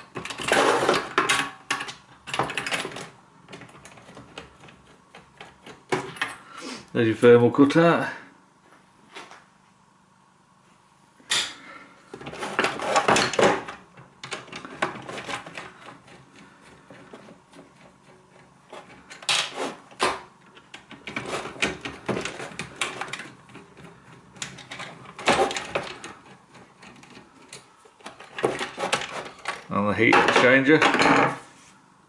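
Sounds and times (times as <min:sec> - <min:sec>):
plastic parts knocking and rattling: 0:00.0 - 0:06.4, 0:12.1 - 0:31.4.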